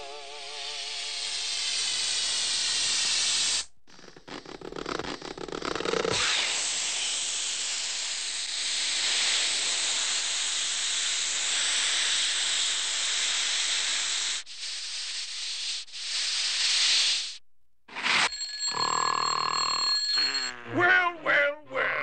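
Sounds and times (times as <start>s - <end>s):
air hissing from air mattress: 0.5s - 3.7s, 6.2s - 17.4s.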